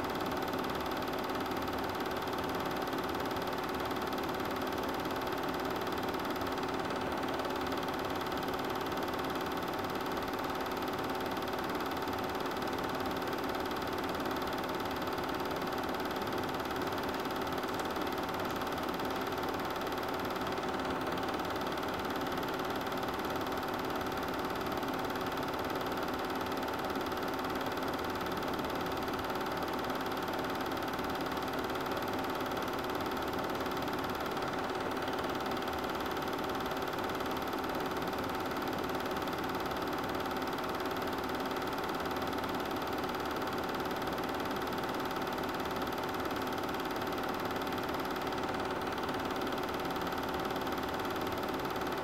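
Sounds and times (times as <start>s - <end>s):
film projector humming: 0.0s - 52.0s.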